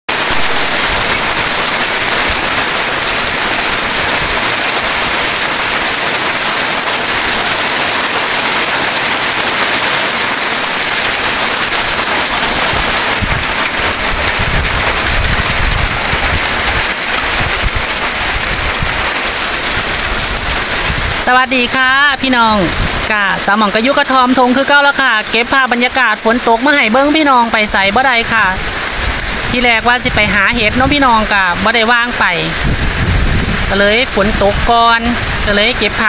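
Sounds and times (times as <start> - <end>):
steady rain falling: 0.1 - 36.0
low rumbling: 7.1 - 23.8, 32.5 - 35.6.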